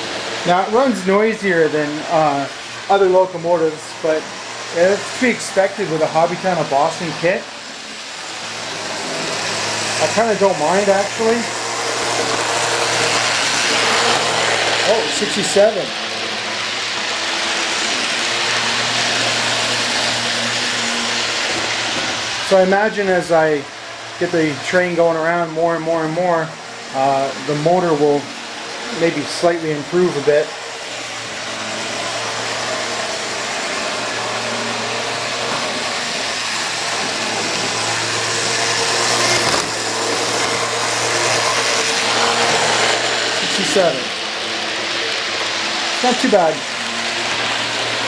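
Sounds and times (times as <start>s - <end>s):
model train motor humming: 0.0s - 28.0s, 28.9s - 48.0s.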